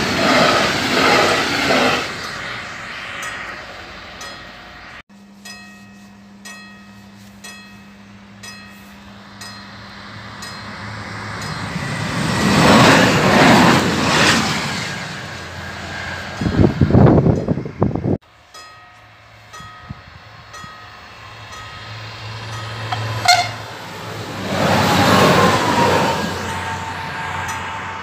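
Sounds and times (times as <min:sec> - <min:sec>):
railcar passing: 0:00.0 - 0:28.0
train rumble: 0:00.0 - 0:28.0
level-crossing bell: 0:05.2 - 0:10.8.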